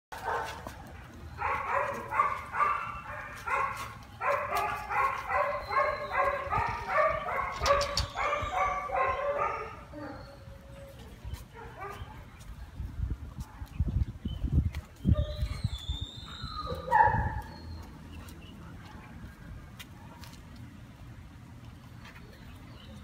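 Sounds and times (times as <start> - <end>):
dog barking: 0.2 - 0.6, 1.4 - 10.2, 11.6 - 12.1, 16.8 - 17.5.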